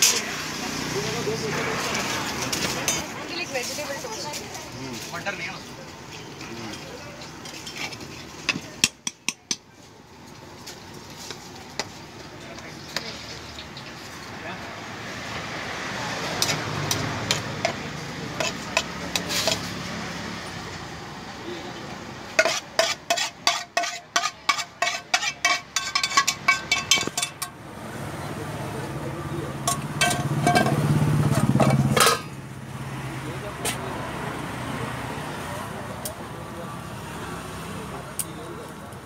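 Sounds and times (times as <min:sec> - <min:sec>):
metal spoon clanking on steel pan: 0:02.5 - 0:03.1, 0:07.4 - 0:09.7, 0:18.4 - 0:19.7, 0:22.4 - 0:27.6, 0:29.6 - 0:32.4.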